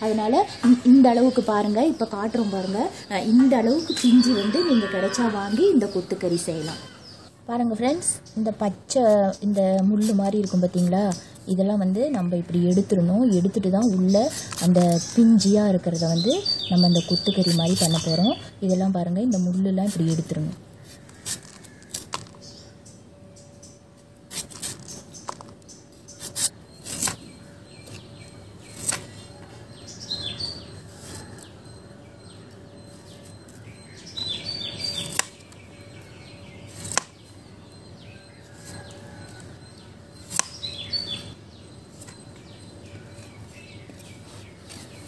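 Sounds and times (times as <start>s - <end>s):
birds chirping: 0.0s - 45.0s
knife chopping and scraping: 20.8s - 22.4s, 24.3s - 28.0s, 28.6s - 29.5s, 35.0s - 35.5s, 36.6s - 37.2s, 40.2s - 40.6s.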